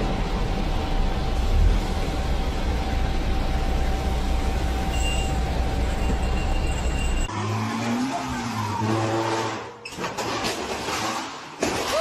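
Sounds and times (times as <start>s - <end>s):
engine running at steady pitch: 0.0s - 7.3s
heavy vehicle engine rumbling: 0.0s - 7.3s.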